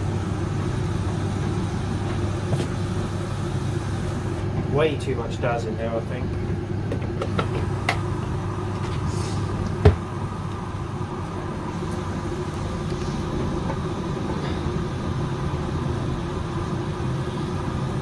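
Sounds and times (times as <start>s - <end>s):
washing machine drum humming: 0.0s - 18.0s.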